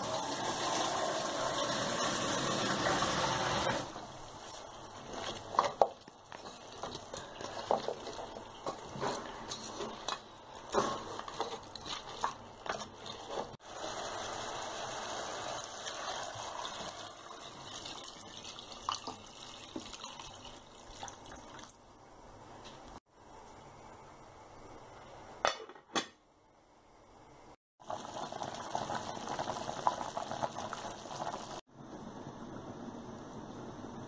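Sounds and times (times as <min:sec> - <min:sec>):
water pouring into pot: 0:00.0 - 0:04.0, 0:13.0 - 0:21.8, 0:27.8 - 0:31.6
sizzling: 0:00.0 - 0:25.4, 0:27.8 - 0:31.7
wooden spoon scraping pot: 0:03.5 - 0:13.6.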